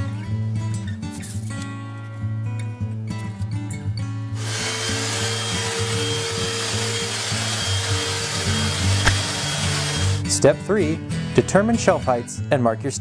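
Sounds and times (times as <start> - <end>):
vacuum cleaner running over carpet: 4.4 - 10.2.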